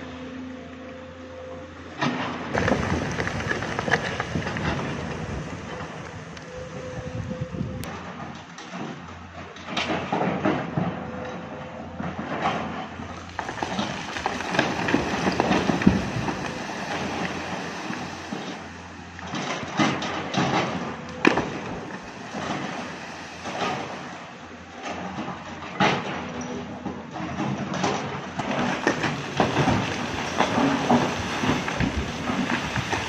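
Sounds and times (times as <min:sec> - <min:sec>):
rockfall rumble: 0:02.5 - 0:06.3, 0:13.3 - 0:24.1, 0:28.4 - 0:33.0
falling stones clattering: 0:02.6 - 0:05.2.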